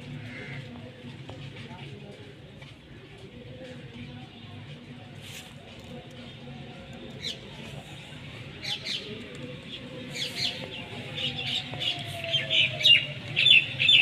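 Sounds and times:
birds chirping: 0:08.6 - 0:14.0.

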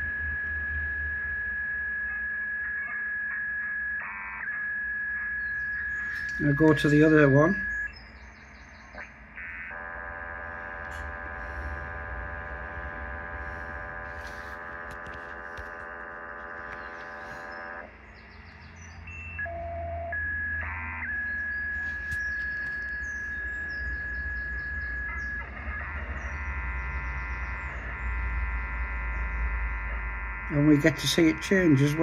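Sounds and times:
single steady radio tone: 0:00.0 - 0:08.0, 0:08.9 - 0:17.9, 0:19.2 - 0:32.0
chord of steady radio tones: 0:00.0 - 0:32.0
radio hiss: 0:06.0 - 0:07.9, 0:09.8 - 0:17.9, 0:30.5 - 0:32.0.

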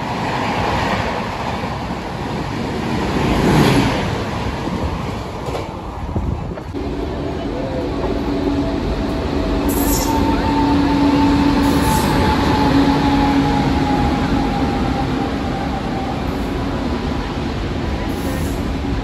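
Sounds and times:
train wheels rumbling on rails: 0:00.0 - 0:19.0
electric locomotive whine: 0:06.7 - 0:19.0.

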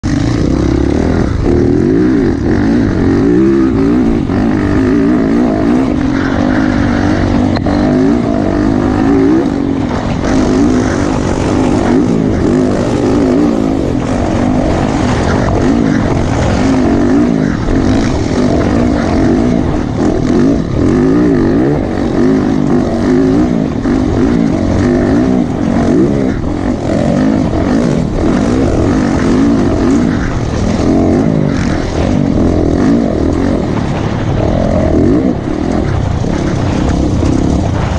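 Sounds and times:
motorcycle engine at high revs: 0:00.0 - 0:37.9.

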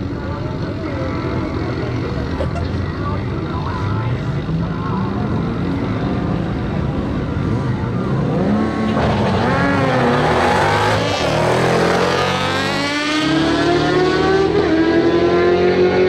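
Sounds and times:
motorcycle accelerating hard: 0:05.3 - 0:16.0.

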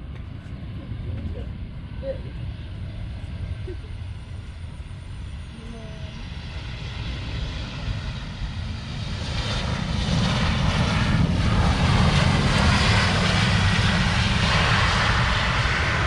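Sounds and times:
jet engines roaring: 0:00.0 - 0:16.0.

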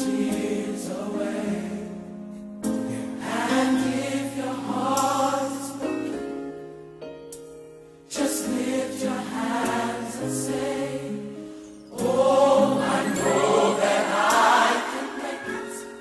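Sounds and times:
choir singing held chords: 0:00.0 - 0:06.0, 0:08.1 - 0:16.0
musical accompaniment: 0:09.5 - 0:16.0.

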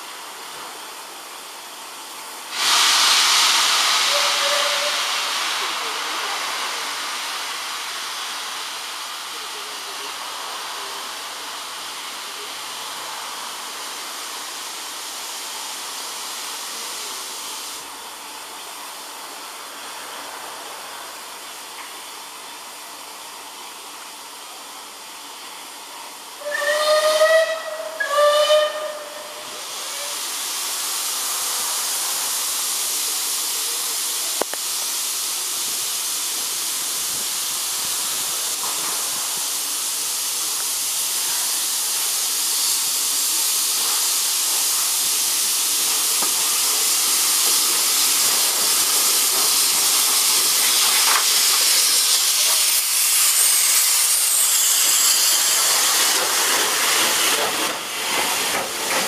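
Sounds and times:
steam locomotive hissing: 0:00.0 - 0:59.0
steam whistle blasts: 0:02.6 - 0:05.3, 0:26.4 - 0:30.2.

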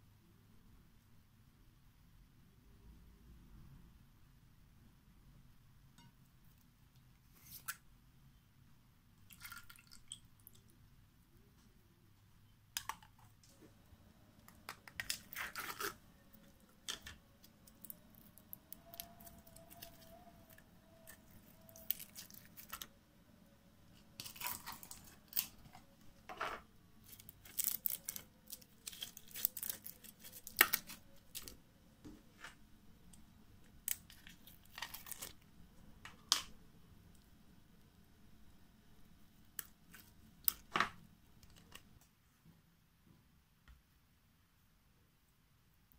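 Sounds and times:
slime crackling and popping: 0:27.0 - 0:31.5
slime tearing: 0:27.1 - 0:31.5.

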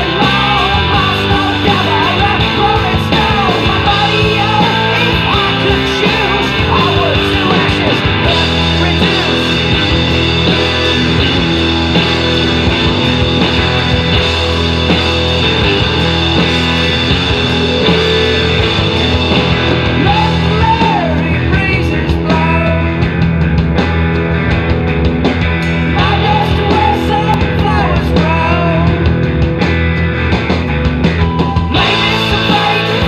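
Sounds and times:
person singing: 0:00.0 - 0:09.8, 0:20.0 - 0:23.0, 0:25.9 - 0:29.1, 0:31.3 - 0:33.0
rock song with electric guitar: 0:00.0 - 0:33.0.

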